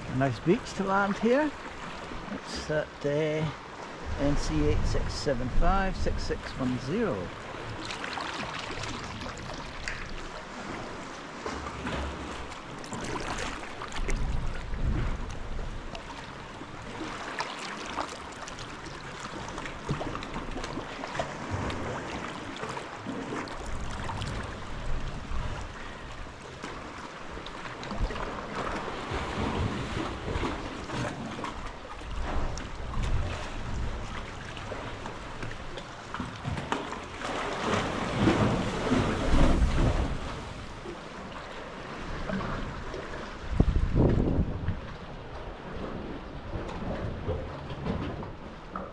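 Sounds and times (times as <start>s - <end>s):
paddle splashing water: 0.0s - 48.9s
steady wash of water: 0.0s - 48.9s
wind rumbling on microphone: 3.9s - 7.8s, 8.8s - 17.0s, 23.4s - 26.8s, 27.8s - 35.4s, 37.7s - 40.9s, 42.0s - 48.6s.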